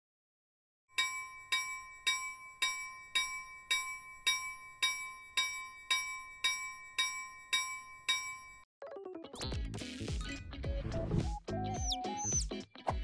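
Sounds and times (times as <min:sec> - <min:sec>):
railroad crossing bell ringing: 0:01.0 - 0:08.7.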